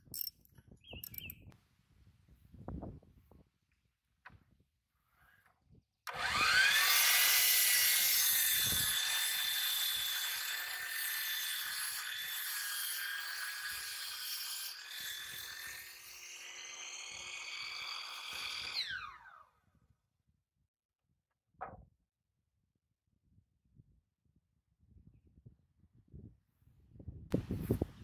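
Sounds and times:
saw blade cutting wood: 0:06.1 - 0:19.4
miter saw whining: 0:06.1 - 0:19.5.

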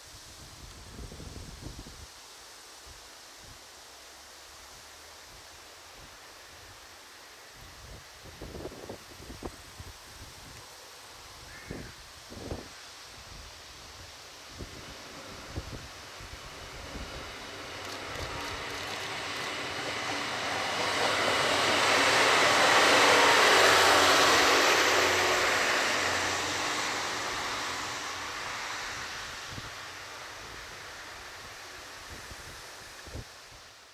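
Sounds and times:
diesel train passing: 0:13.6 - 0:33.9.

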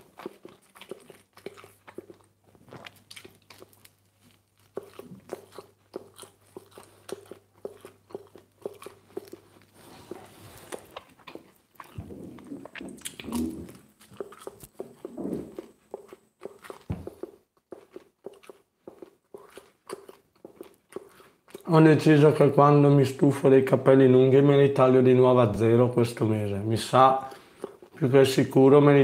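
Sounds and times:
person chewing crunchy crust: 0:00.0 - 0:21.7, 0:27.2 - 0:28.2.

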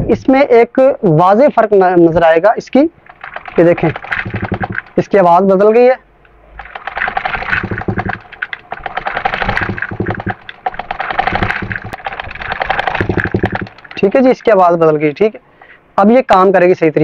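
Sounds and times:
sewing machine clattering: 0:03.0 - 0:05.1, 0:06.6 - 0:14.6.

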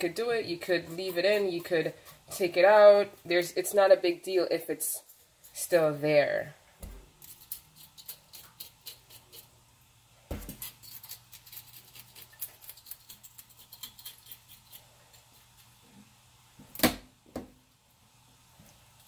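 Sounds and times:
scissors clicking and scraping fish: 0:07.2 - 0:09.5, 0:10.5 - 0:14.9.

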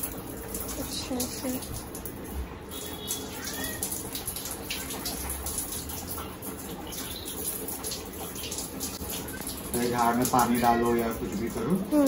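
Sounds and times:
hose spray splashing on tiles: 0:00.0 - 0:02.0.

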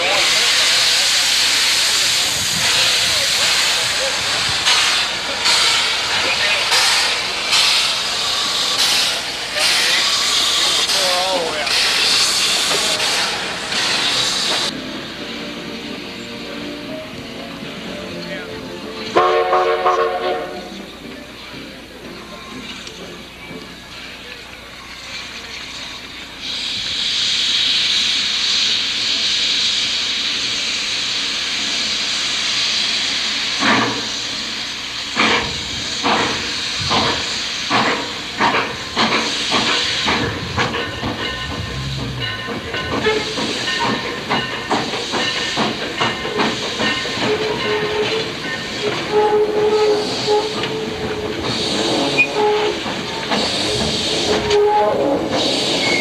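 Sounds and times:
steam hissing: 0:00.0 - 0:21.8, 0:24.8 - 0:56.0
steam locomotive exhaust beats: 0:00.0 - 0:56.0
locomotive clatter: 0:35.2 - 0:56.0.

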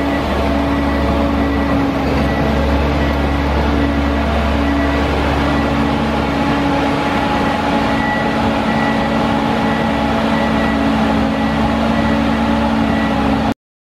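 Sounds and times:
diesel engine idling: 0:00.0 - 0:13.5.

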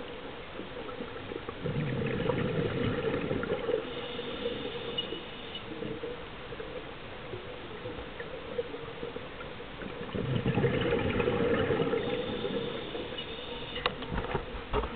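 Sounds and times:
muffled underwater noise: 0:00.2 - 0:14.0
diver exhaling bubbles: 0:01.5 - 0:04.9, 0:09.9 - 0:13.1.

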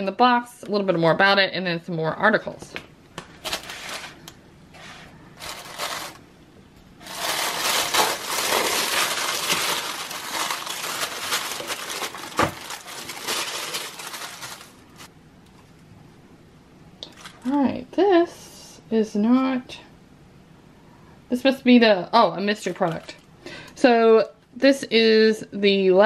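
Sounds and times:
paper crinkling and rustling: 0:03.4 - 0:04.2, 0:04.8 - 0:06.2, 0:07.0 - 0:15.1.

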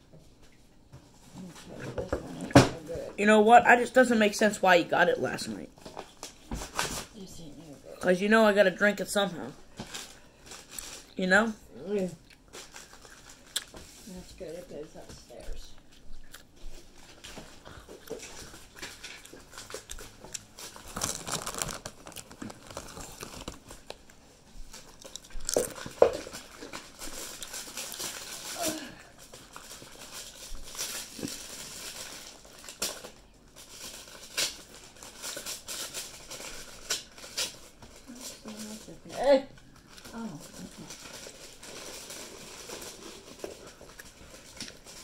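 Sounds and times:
food packaging crinkling: 0:09.6 - 0:11.2, 0:12.1 - 0:14.1, 0:15.9 - 0:45.0.

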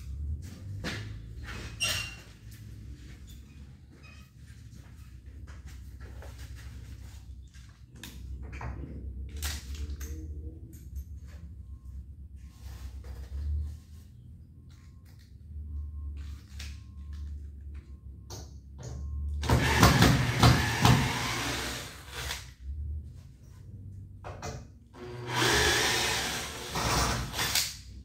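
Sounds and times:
cordless drill running: 0:19.4 - 0:22.4, 0:25.0 - 0:27.6.

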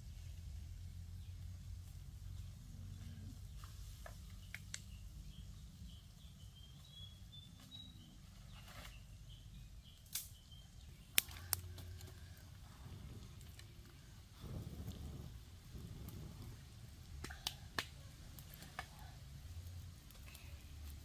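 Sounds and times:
low steady rumble: 0:00.0 - 0:06.6, 0:10.7 - 0:21.0
bird chirping faintly: 0:02.2 - 0:16.7.

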